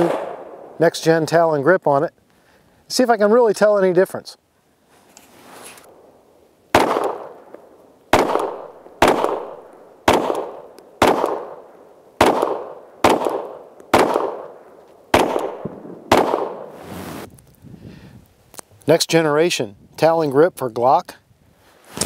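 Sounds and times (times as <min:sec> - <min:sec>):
pistol gunshots with echo: 0:00.0 - 0:01.0, 0:06.7 - 0:07.5, 0:08.1 - 0:16.8.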